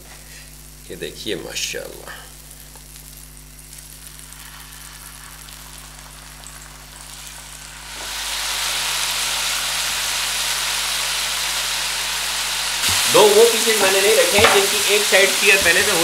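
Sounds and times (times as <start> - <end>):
steaks sizzling in butter: 2.3 - 16.0.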